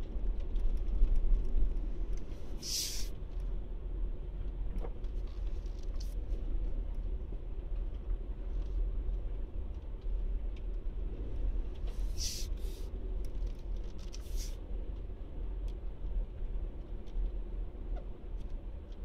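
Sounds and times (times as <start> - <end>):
car driving rumble: 0.0 - 19.0
short hissing sounds: 2.6 - 3.1, 12.0 - 12.8, 14.2 - 14.6.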